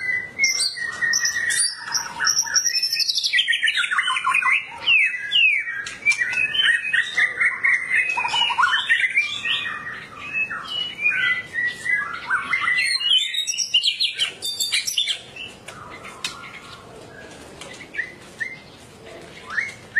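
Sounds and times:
songbird whistling varied notes: 0:00.0 - 0:15.2.

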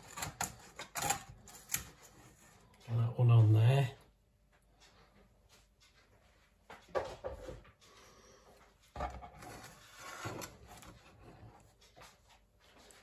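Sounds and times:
utensils and plate clattering: 0:00.0 - 0:02.2.

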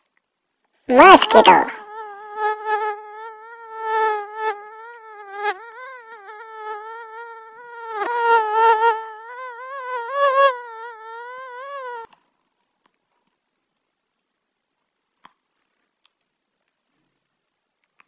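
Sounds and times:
mosquito wingbeat whine: 0:01.8 - 0:12.1.

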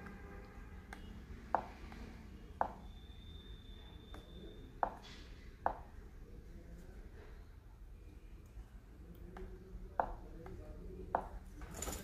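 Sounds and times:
faint high whine: 0:02.1 - 0:04.8.

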